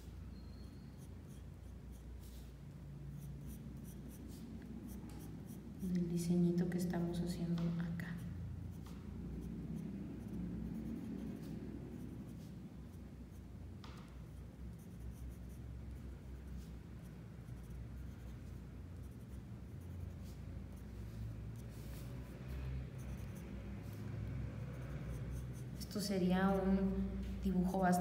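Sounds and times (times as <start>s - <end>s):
low steady hum: 0.0s - 28.0s
pencil scratching on paper: 0.9s - 6.2s, 6.8s - 26.6s.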